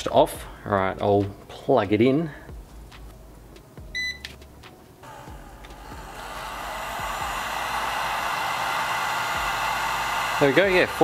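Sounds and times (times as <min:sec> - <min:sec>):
heat gun fan blowing: 0:05.0 - 0:11.0.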